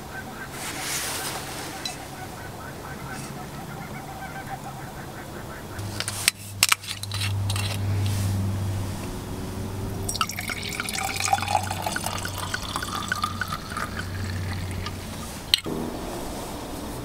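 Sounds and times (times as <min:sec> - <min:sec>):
low hum: 0:00.0 - 0:17.0
wine glugging into metal cup: 0:10.1 - 0:15.6.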